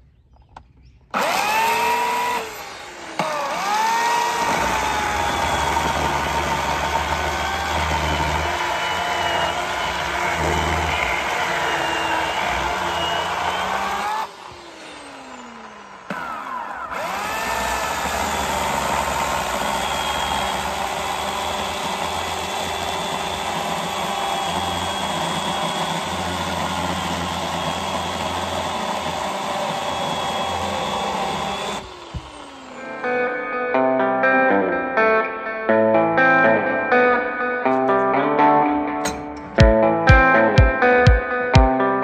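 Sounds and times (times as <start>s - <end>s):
electric chainsaw cutting log: 1.1s - 34.6s.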